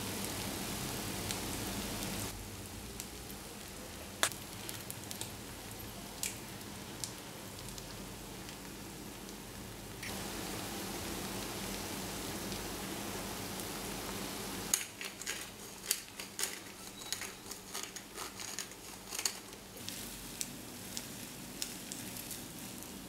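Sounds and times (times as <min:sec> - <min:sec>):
rice sizzling in a skillet: 0:00.0 - 0:23.0
sharp clicks and crackles: 0:04.2 - 0:05.4, 0:06.2 - 0:06.4, 0:14.7 - 0:22.5.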